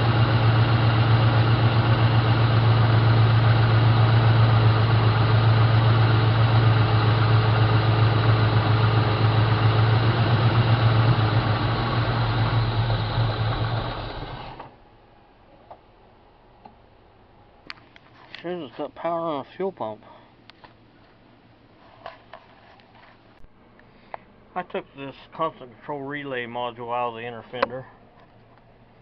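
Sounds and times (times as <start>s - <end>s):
car engine idling: 0.0s - 14.9s.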